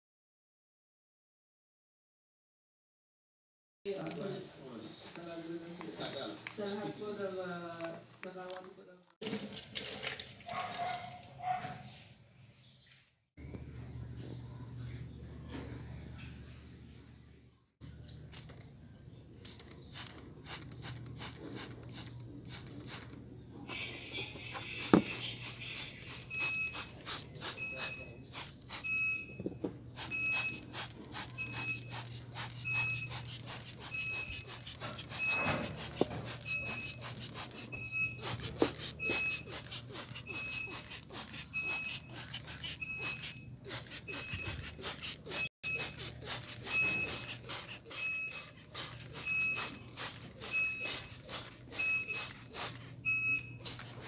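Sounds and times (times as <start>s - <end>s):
brush rubbing plastic: 19.4s - 23.2s, 24.2s - 29.0s, 29.9s - 54.0s
spray bottle squirting: 19.4s - 23.2s, 24.8s - 29.0s, 30.0s - 54.0s
short high electronic beep: 26.3s - 26.9s, 31.3s - 32.0s, 35.1s - 35.7s, 36.4s - 37.0s, 40.2s - 42.1s, 46.6s - 47.3s.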